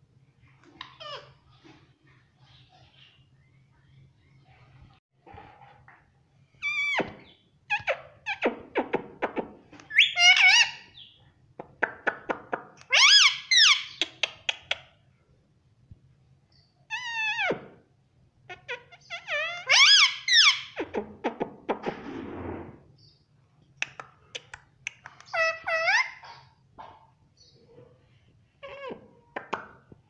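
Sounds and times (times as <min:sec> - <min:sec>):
parrot squawking: 0:00.8 - 0:01.4, 0:09.9 - 0:11.1, 0:12.8 - 0:14.8, 0:16.9 - 0:17.7, 0:18.5 - 0:21.0, 0:24.4 - 0:26.5
parrot clicking: 0:23.8 - 0:25.4.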